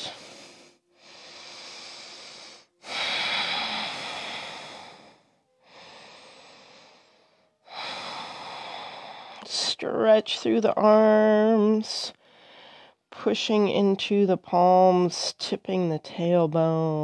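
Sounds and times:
woman breathing close to microphone: 0.0 - 9.6, 12.1 - 13.1.

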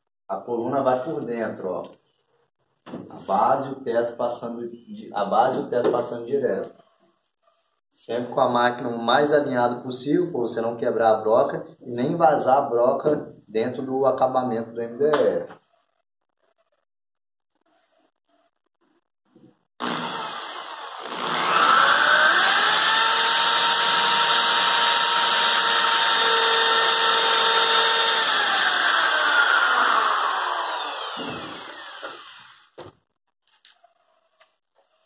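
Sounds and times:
electric drill boring into wood: 19.8 - 32.8.

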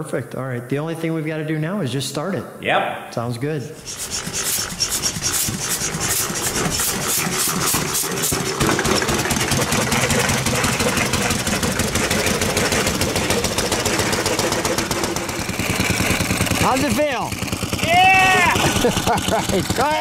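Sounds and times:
small engine starting and running: 3.8 - 20.0.

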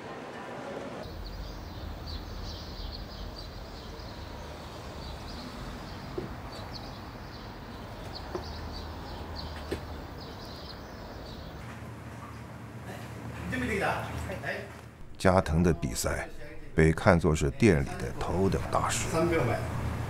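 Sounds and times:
small birds chirping: 1.1 - 12.5.

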